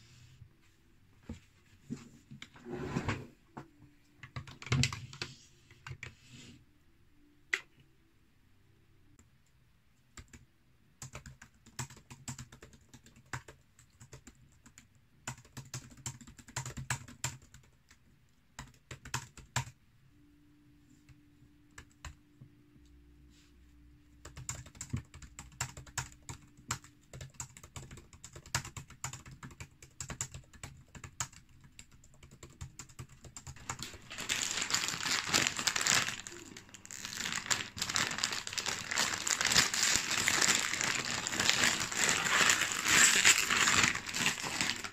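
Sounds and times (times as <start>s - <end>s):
laptop keyboard typing: 4.2s - 6.2s, 10.1s - 10.4s, 11.0s - 18.0s, 18.6s - 19.8s, 24.2s - 36.2s
plastic packaging crinkling: 33.6s - 44.9s.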